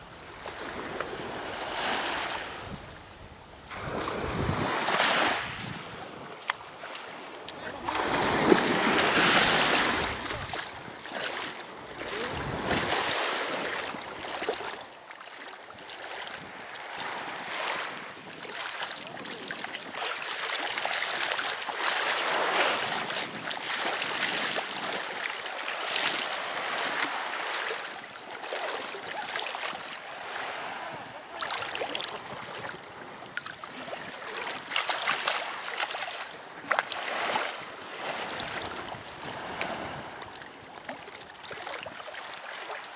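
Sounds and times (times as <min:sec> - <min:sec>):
sea waves washing on shore: 0:00.0 - 0:42.9
wind buffeting microphone: 0:02.5 - 0:06.3, 0:11.9 - 0:13.1.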